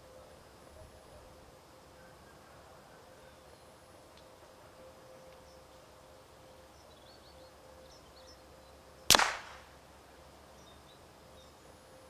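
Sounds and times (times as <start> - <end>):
suppressed rifle shot: 9.1 - 9.7.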